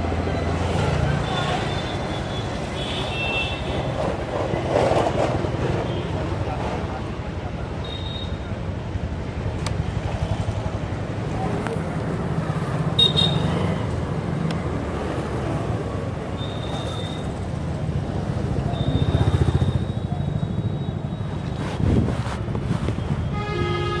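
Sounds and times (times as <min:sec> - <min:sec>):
passing motorcycles and cars: 0:08.8 - 0:24.0.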